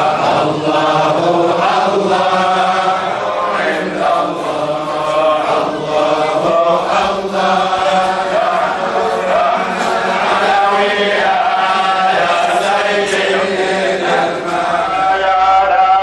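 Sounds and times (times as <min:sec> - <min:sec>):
religious chanting: 0:00.0 - 0:16.0.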